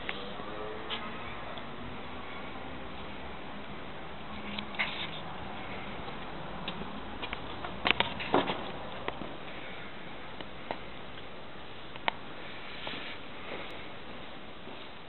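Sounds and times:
sharp clicks and knocks: 6.1 - 9.3.

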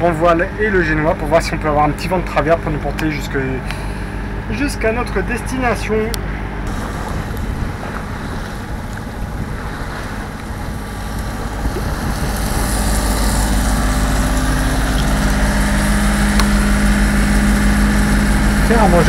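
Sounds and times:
boat diesel engine running: 0.0 - 19.0
water rushing along hull: 0.0 - 19.0
wind on microphone: 6.6 - 18.7.

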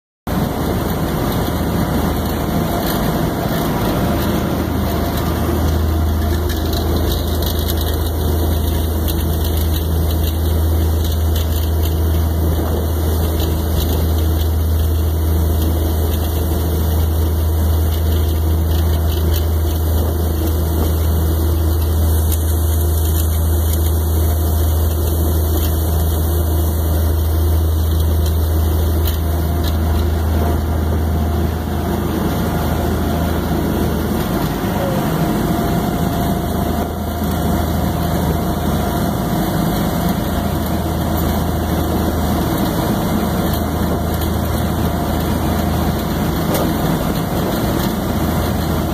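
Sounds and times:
boat engines droning: 0.3 - 48.9.

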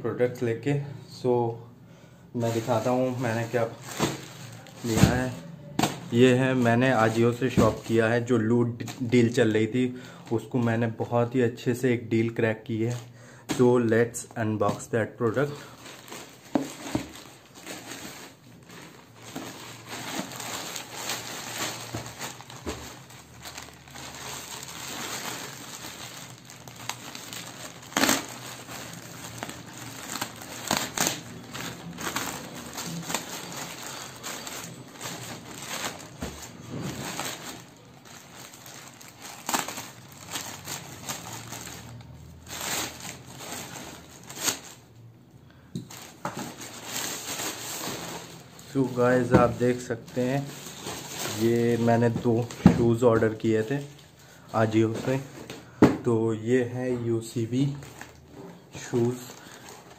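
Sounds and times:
plastic bag rustling: 2.4 - 11.4, 12.7 - 45.0, 45.7 - 59.9
plastic crackles: 2.4 - 11.4, 12.6 - 59.9
plastic mailer bag being cut: 16.0 - 44.8.

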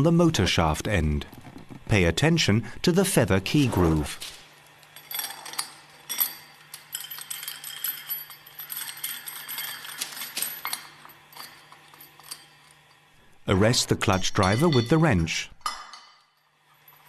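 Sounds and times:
small metal parts clinking: 4.7 - 13.1.

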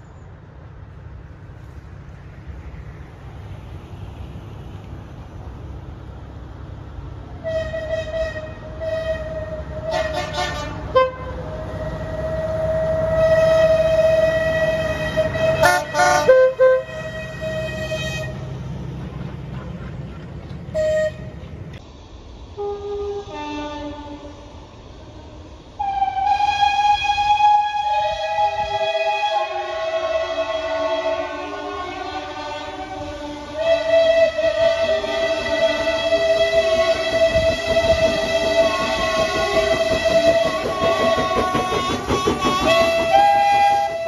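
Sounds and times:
diesel locomotive engine rumbling: 0.0 - 44.0
locomotive horn blasts: 7.4 - 18.5, 20.7 - 21.5, 22.6 - 24.4, 25.8 - 44.0.

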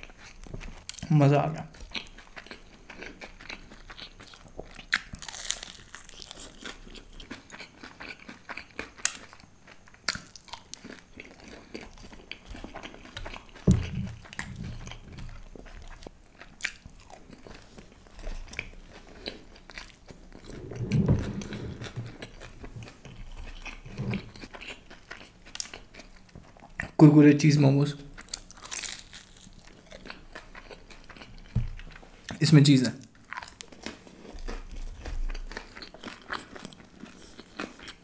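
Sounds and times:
crunching and chewing fried snacks: 0.0 - 20.5, 22.1 - 27.0, 28.0 - 38.0
dull thumps: 13.7 - 14.9, 20.5 - 22.9.

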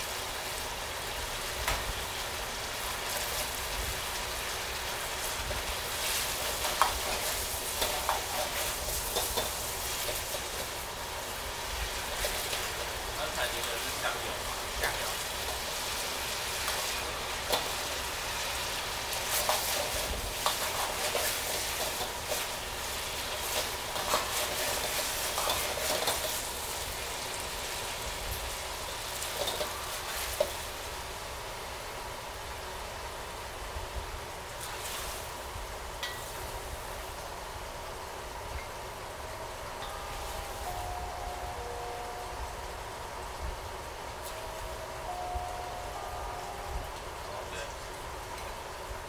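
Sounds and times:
sauce sizzling in a wok: 0.0 - 49.0.

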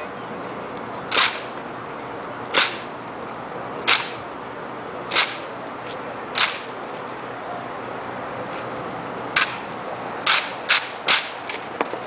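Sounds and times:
rifle drill cracks: 6.4 - 6.7.

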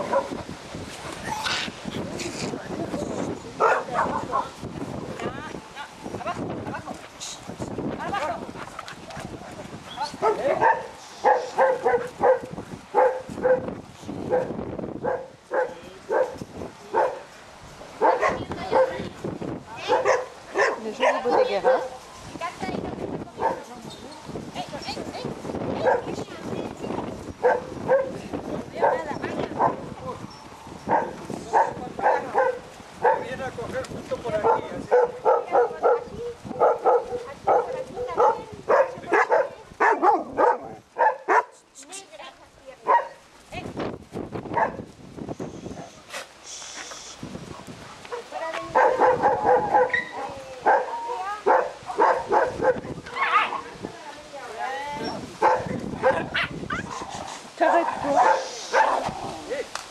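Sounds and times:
dogs barking: 0.0 - 0.4, 3.6 - 4.6, 10.2 - 13.7, 14.3 - 17.3, 18.0 - 19.1, 19.8 - 22.0, 23.4 - 23.7, 25.8 - 26.2, 27.4 - 28.2, 28.8 - 30.0, 30.8 - 33.4, 34.4 - 41.6, 42.8 - 43.2, 44.6 - 44.8, 48.0 - 53.6, 55.4 - 59.2.

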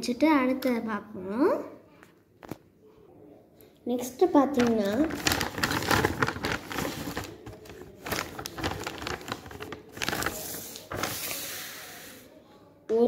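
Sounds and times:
plastic packaging crinkling: 4.5 - 11.3.

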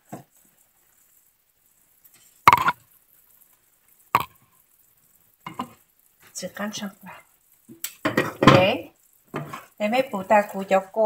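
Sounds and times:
saucepan knocks: 2.5 - 2.8.

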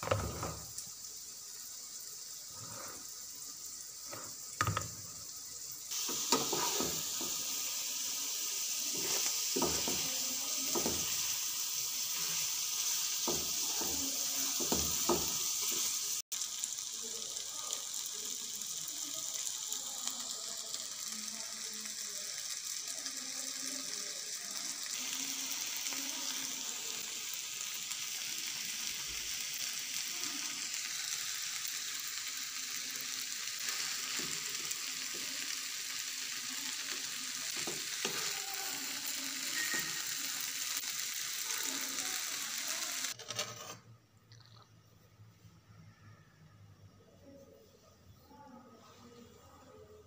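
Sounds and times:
noodles sizzling in a frying pan: 0.0 - 44.1.

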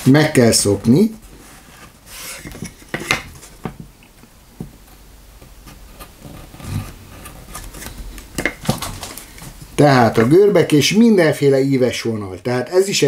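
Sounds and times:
knife carving wood: 4.8 - 8.8.

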